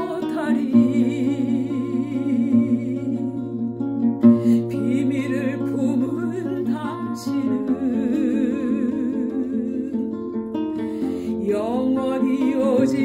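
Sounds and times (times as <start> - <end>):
classical guitar: 0.0 - 13.0
woman singing slow ballad: 0.0 - 13.0.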